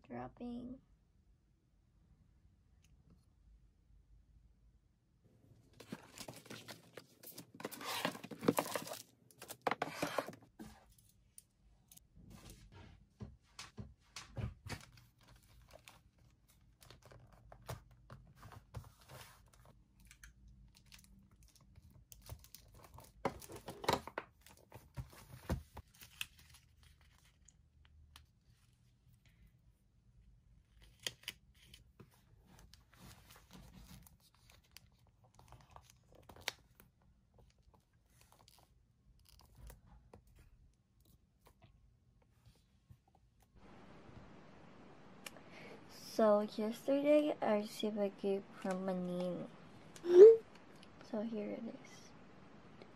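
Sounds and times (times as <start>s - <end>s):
paper and plastic rustling: 5.6s - 11.4s, 14.3s - 27.6s, 30.8s - 41.6s.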